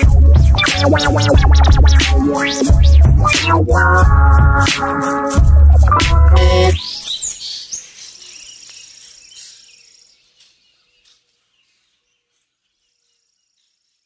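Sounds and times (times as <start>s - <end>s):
faint high-pitched chirping: 6.4s - 14.0s.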